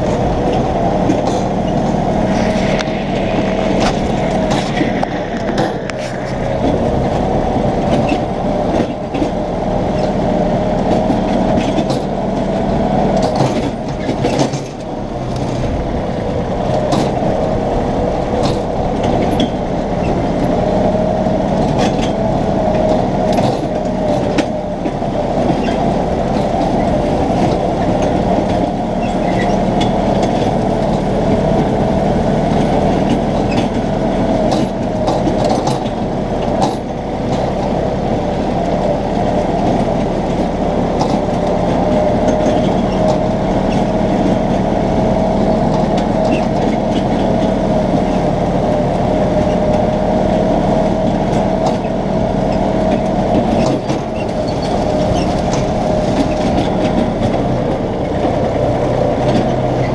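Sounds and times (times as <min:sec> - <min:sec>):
steady high whine: 0:00.0 - 0:33.4, 0:50.8 - 0:58.3
tractor diesel engine droning: 0:00.0 - 0:59.9.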